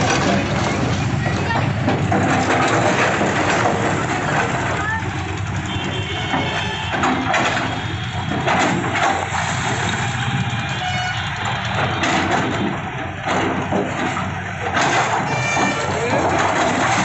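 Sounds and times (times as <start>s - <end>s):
masonry crashing down: 0.0s - 5.4s, 11.7s - 17.0s
heavy diesel engines running: 0.0s - 17.0s.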